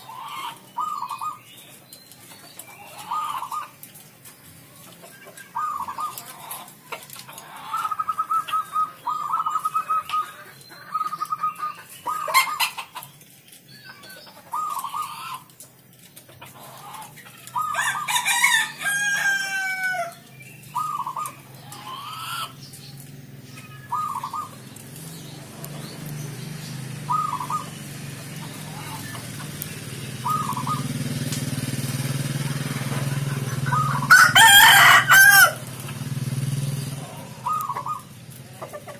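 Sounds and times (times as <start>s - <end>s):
dove cooing: 0.0s - 1.6s, 2.4s - 3.8s, 4.8s - 13.1s, 14.0s - 15.5s, 16.4s - 38.9s
low steady rumble: 16.6s - 38.9s
rooster crowing: 17.6s - 20.2s, 33.6s - 35.7s.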